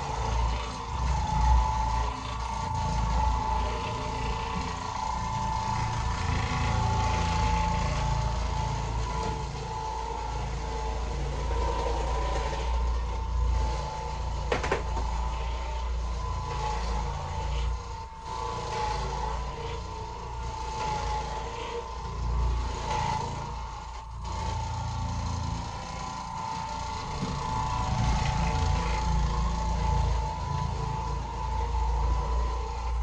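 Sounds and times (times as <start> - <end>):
floor machine motor humming: 0.0 - 33.0.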